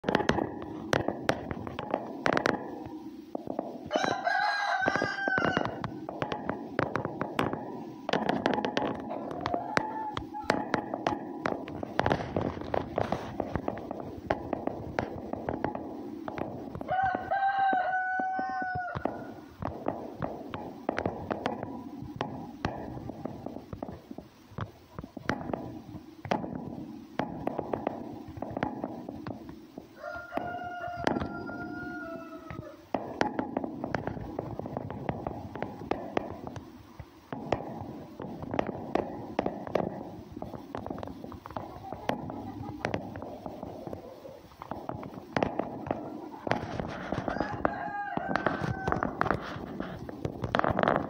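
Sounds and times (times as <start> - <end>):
animal calling: 41.6 - 44.6.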